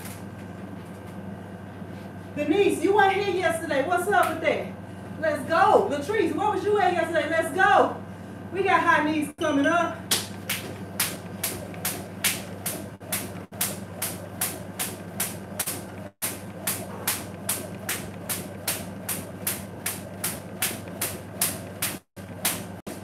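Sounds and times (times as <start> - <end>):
jump rope slapping tile floor: 10.1 - 22.8.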